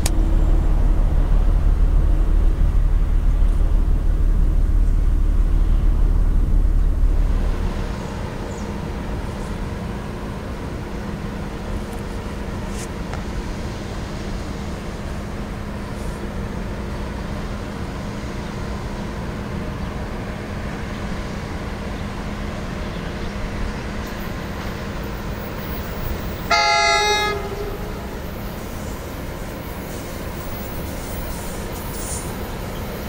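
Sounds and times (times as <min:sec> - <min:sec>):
train rumbling: 0:00.0 - 0:33.0
train horn blast: 0:26.4 - 0:28.5.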